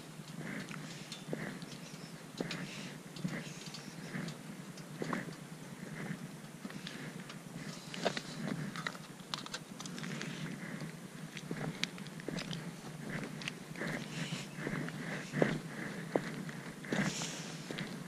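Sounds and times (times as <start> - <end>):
footsteps on gravel: 5.0 - 18.0.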